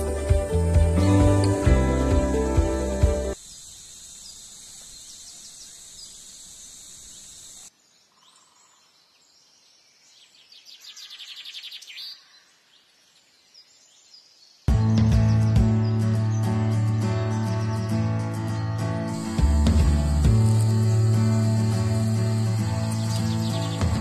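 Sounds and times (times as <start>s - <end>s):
high hiss: 0.0s - 7.7s, 19.1s - 24.0s
bird chirps: 3.5s - 16.6s, 17.3s - 24.0s.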